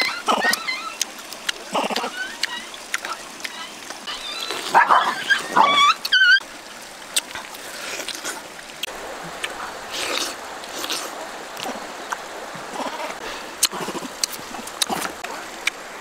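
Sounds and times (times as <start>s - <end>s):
monkeys squealing: 0.0s - 6.4s
wet eating noises: 0.0s - 16.0s.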